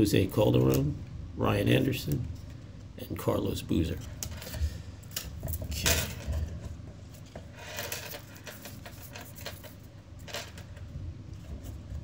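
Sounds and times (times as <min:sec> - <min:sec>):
cards scraping on wooden table: 0:04.0 - 0:10.8.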